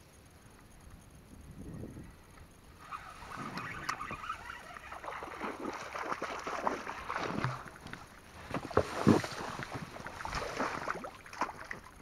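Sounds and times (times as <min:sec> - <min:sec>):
fish splashing at water surface: 0:03.2 - 0:12.0.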